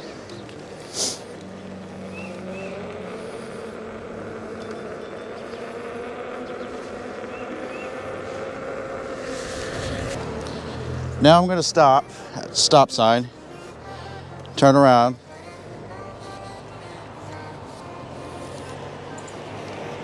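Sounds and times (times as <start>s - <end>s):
faint electric motor whine: 0.0s - 20.0s
tire road noise: 0.0s - 20.0s
brief hiss: 0.9s - 1.2s.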